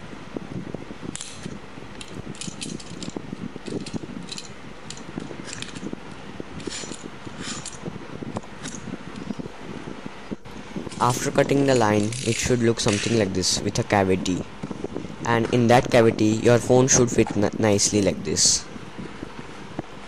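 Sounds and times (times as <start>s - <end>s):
handling clicks and knocks: 1.1s - 9.3s, 10.9s - 13.3s.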